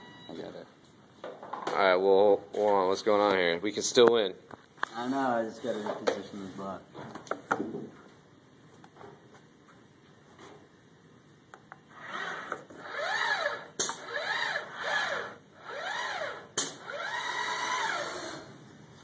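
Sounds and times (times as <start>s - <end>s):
robot arm motors whining: 11.9s - 18.6s.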